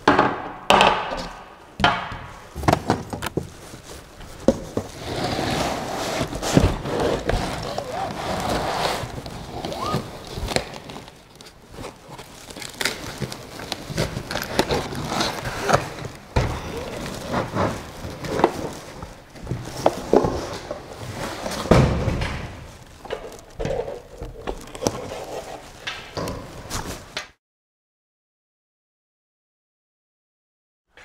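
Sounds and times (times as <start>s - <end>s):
cardboard and packing rustling: 2.4s - 27.2s.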